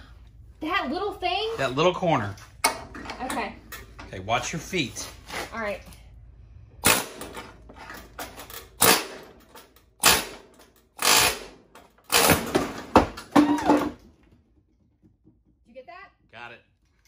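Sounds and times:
pneumatic tool bursts on steel: 6.8 - 7.3, 8.8 - 9.2, 10.0 - 12.5.

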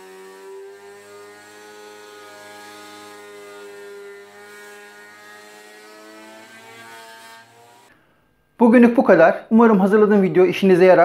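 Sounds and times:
planer-thicknesser whining: 0.0 - 8.0.

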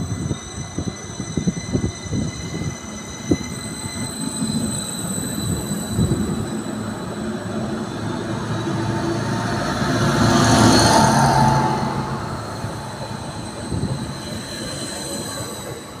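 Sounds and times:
train running past: 0.0 - 16.0.

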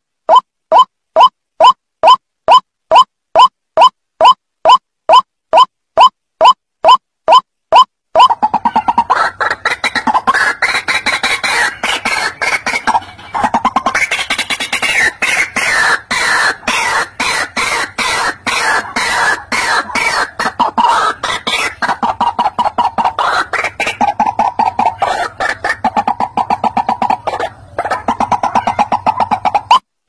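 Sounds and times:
waterhen calling harsh notes: 7.3 - 29.8.

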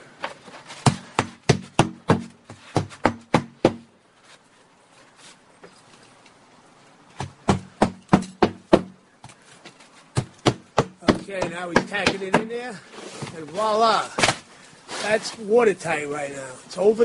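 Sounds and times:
hammer strikes: 7.2 - 9.0, 10.2 - 12.6.

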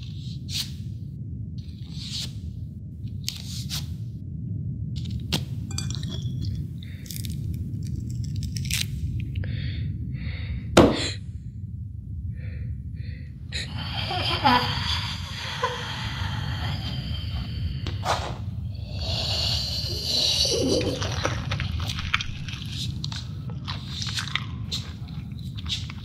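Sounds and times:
low drone: 0.0 - 26.0
chewing and gnawing on a bone: 20.8 - 26.0.

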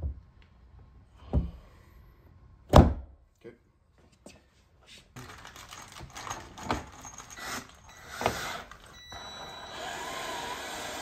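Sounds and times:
screws and hex key rattling: 5.2 - 8.0
cordless drill running: 7.2 - 11.0.

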